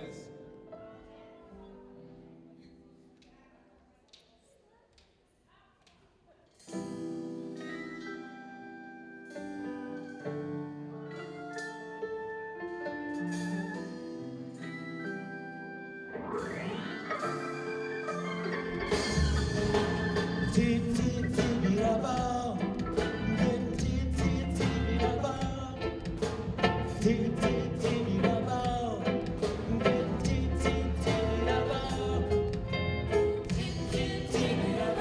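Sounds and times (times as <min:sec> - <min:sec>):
live band music: 0:06.6 - 0:35.0.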